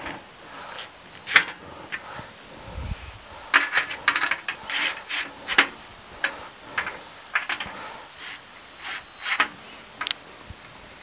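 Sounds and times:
cordless drill driving screws: 0:04.6 - 0:05.6, 0:08.0 - 0:09.5.

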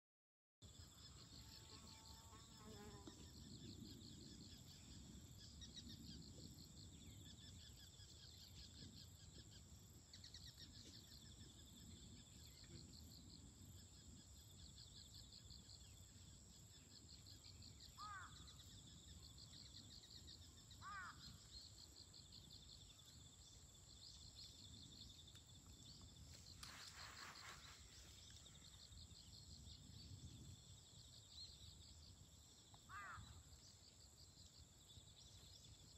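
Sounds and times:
insects trilling: 0:00.7 - 0:35.9.

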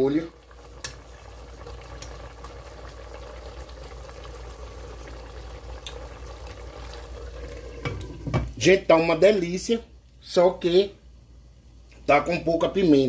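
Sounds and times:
sauce bubbling in a pan: 0:00.0 - 0:08.6.

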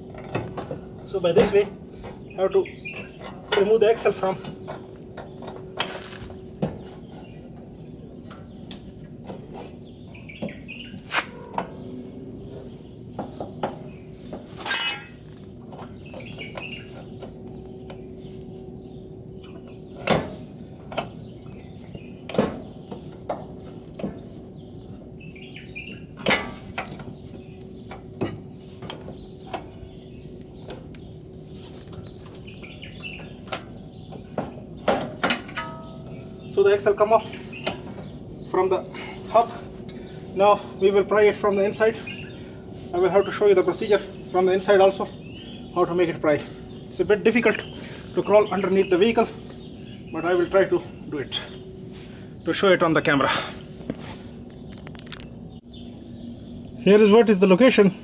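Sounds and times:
birds chirping: 0:00.0 - 0:58.0
metallic knocks and clinks: 0:14.6 - 0:15.5.

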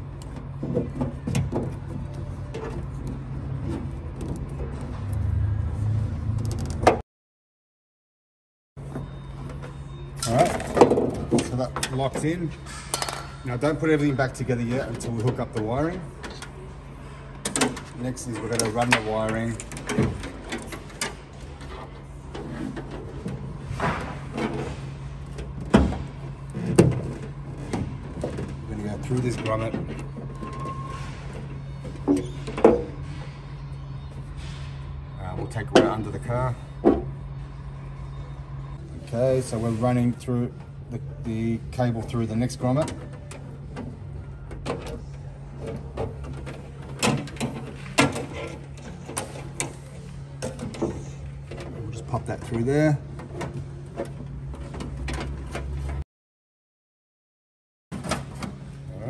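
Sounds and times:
cable rustling and scraping: 0:08.9 - 0:34.9, 0:41.8 - 0:56.0.

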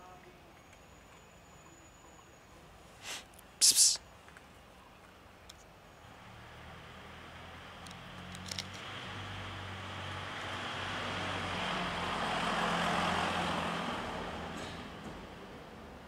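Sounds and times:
car driving past: 0:06.1 - 0:15.4.

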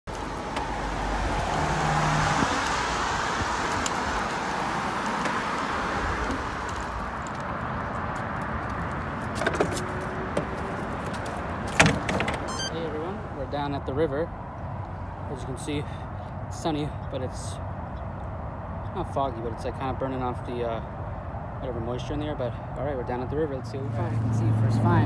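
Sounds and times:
car passing: 0:00.1 - 0:17.0, 0:23.5 - 0:25.0.

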